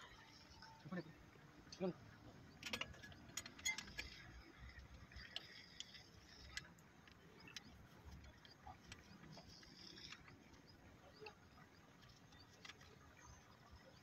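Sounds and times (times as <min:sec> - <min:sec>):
metal wrench clicking and clinking: 0:02.6 - 0:04.3.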